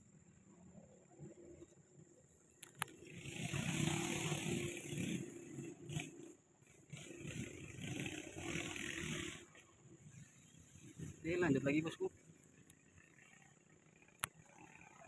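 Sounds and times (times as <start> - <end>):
diesel truck engine revving: 3.0 - 9.5.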